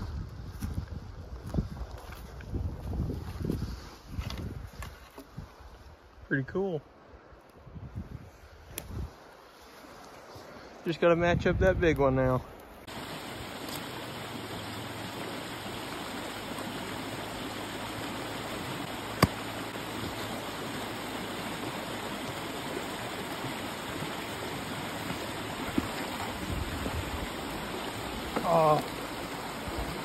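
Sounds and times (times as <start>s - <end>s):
running water: 12.8s - 30.0s.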